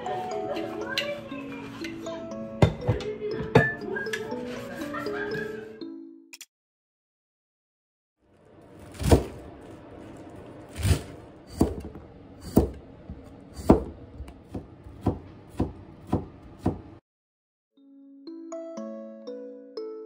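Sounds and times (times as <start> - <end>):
soft chiming background music: 0.0 - 6.3, 17.8 - 20.0
knife chopping on wooden board: 10.8 - 12.8, 13.6 - 16.9.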